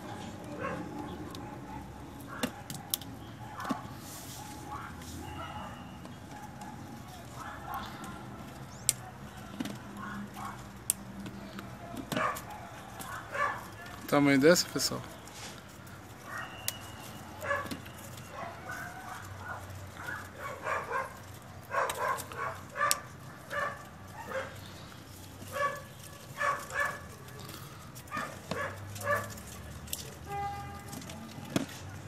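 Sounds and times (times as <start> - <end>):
dog barking: 0.0 - 10.6, 11.8 - 14.0, 16.2 - 24.6, 25.4 - 29.7.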